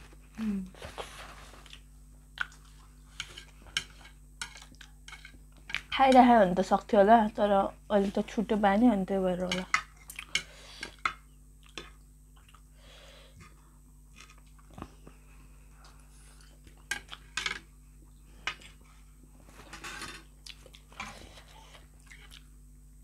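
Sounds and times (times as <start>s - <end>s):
soft chewing: 0.1s - 6.0s, 9.8s - 12.7s, 13.4s - 19.3s, 20.4s - 22.6s.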